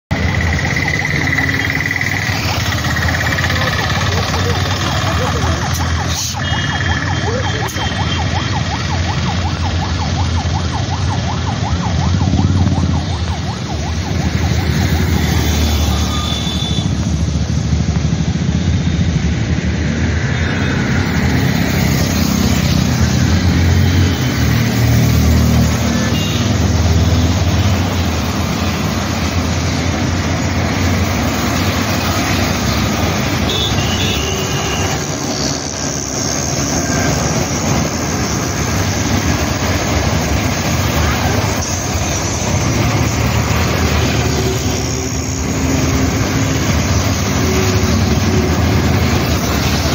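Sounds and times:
road traffic rumble: 0:00.1 - 0:49.9
car horn toots: 0:15.5 - 0:17.0, 0:33.3 - 0:35.1.

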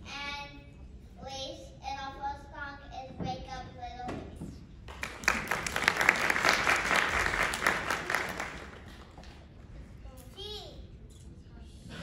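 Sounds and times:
audience applauding: 0:04.9 - 0:09.2.

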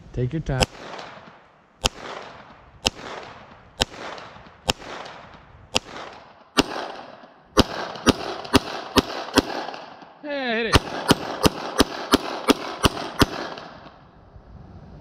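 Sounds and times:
pistol shots echoing: 0:00.6 - 0:14.0.

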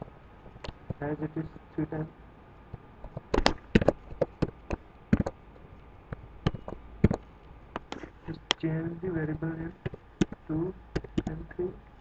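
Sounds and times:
keyboard and mouse clicking: 0:03.1 - 0:05.4, 0:06.1 - 0:08.1, 0:09.8 - 0:11.4.

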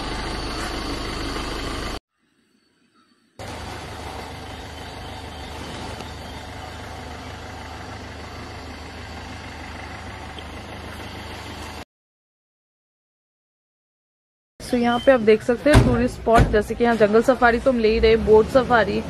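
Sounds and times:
engine idling: 0:00.0 - 0:02.0, 0:03.4 - 0:11.8.

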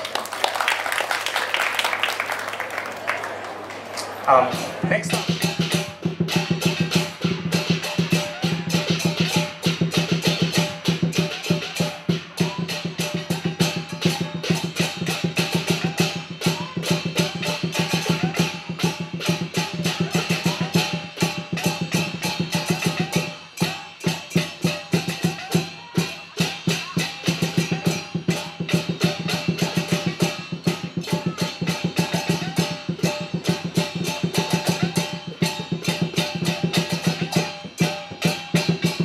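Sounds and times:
fast dragon dance percussion: 0:04.3 - 0:39.0.

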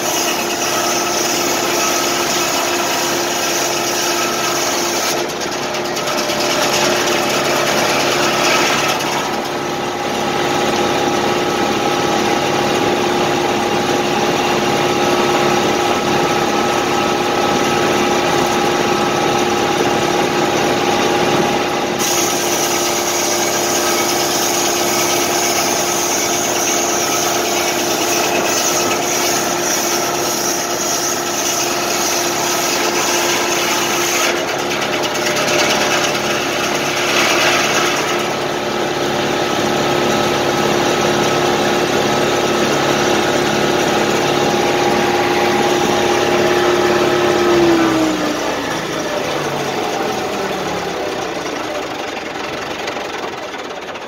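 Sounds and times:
sawmill whine and hiss: 0:00.0 - 0:05.7, 0:06.3 - 0:54.0
tractor engine running: 0:05.2 - 0:22.0, 0:34.3 - 0:54.0.

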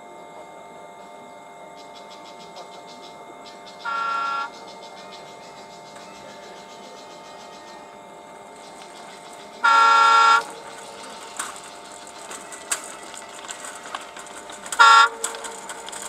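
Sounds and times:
train horn blast: 0:03.8 - 0:04.5, 0:09.6 - 0:10.7, 0:14.7 - 0:15.9.

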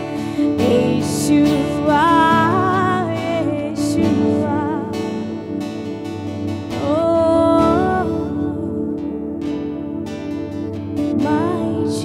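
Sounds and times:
woman singing worship song: 0:00.0 - 0:05.8, 0:06.7 - 0:10.0, 0:11.0 - 0:12.0
strummed acoustic guitar: 0:00.0 - 0:12.0.

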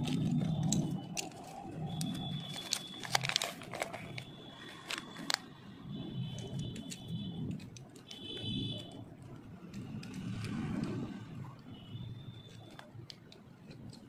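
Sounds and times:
paper crinkling and rustling: 0:00.0 - 0:05.5, 0:06.3 - 0:11.6, 0:12.3 - 0:14.0
sharp clicks and crackles: 0:00.0 - 0:14.0.

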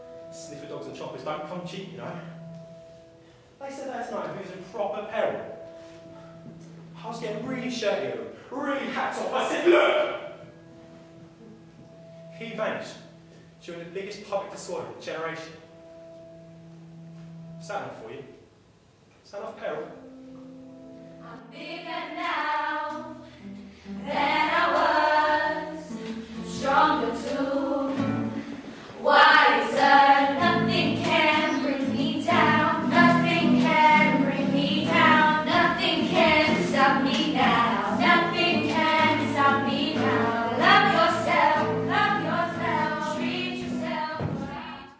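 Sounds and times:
guitar: 0:00.0 - 0:08.3, 0:09.3 - 0:14.4, 0:15.4 - 0:18.4, 0:19.8 - 0:44.9
women singing: 0:21.3 - 0:23.2, 0:24.0 - 0:44.9.

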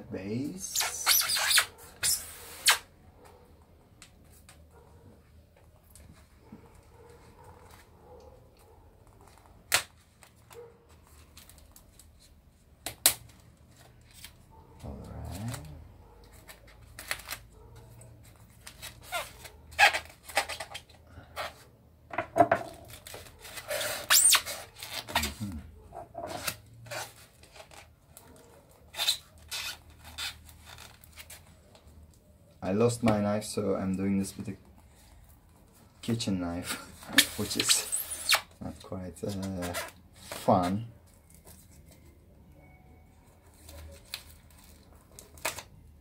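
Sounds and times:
tape tearing: 0:00.6 - 0:02.9, 0:09.1 - 0:21.7, 0:22.6 - 0:25.6, 0:26.2 - 0:31.8, 0:36.6 - 0:38.6, 0:39.2 - 0:42.1, 0:43.5 - 0:46.0.

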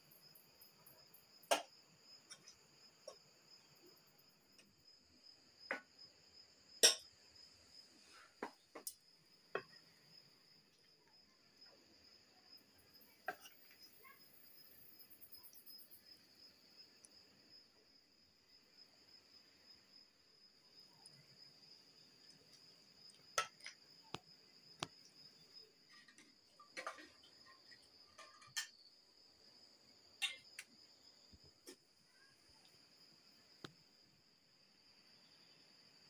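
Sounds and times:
crickets chirping: 0:00.0 - 0:36.0
spoon clinking against steel pots: 0:30.2 - 0:30.6.

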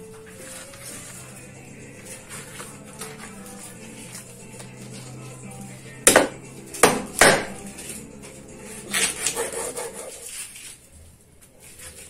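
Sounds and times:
knife chopping on wooden board: 0:06.1 - 0:07.6.

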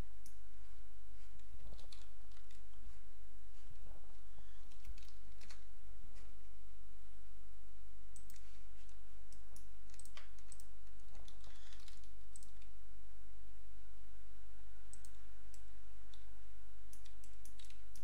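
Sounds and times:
steady low hum: 0:00.0 - 0:18.0
computer mouse clicks: 0:01.4 - 0:02.8, 0:04.6 - 0:05.7, 0:08.2 - 0:12.7, 0:14.9 - 0:16.3, 0:16.9 - 0:18.0.

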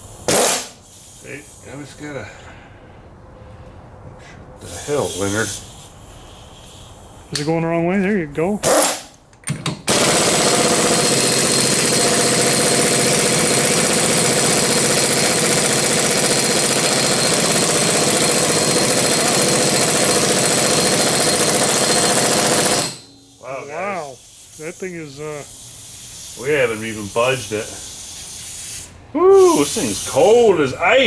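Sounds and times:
air impact wrench hammering: 0:00.2 - 0:01.2, 0:08.6 - 0:30.3.

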